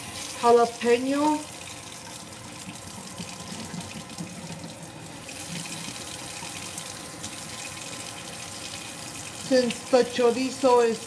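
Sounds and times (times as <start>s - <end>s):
tap water running: 0.0s - 11.0s.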